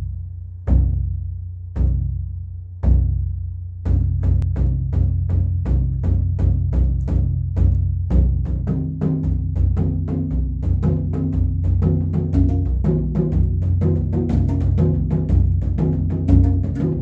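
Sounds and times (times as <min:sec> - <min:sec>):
large drum struck with sticks: 0:03.8 - 0:17.0.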